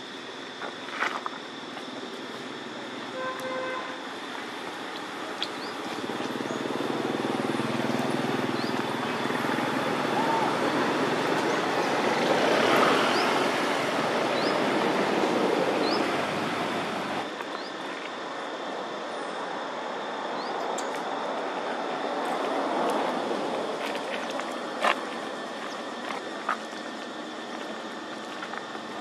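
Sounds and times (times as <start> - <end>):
road traffic rushing: 3.1 - 17.3.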